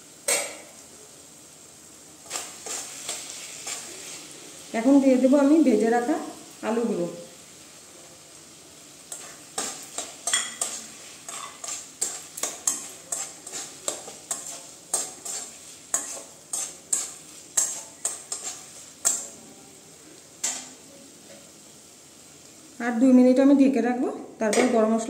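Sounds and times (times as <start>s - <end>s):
low frying sizzle: 0.0s - 25.0s
spatula scraping and knocking pan: 2.2s - 4.2s, 9.1s - 19.4s, 20.4s - 21.5s.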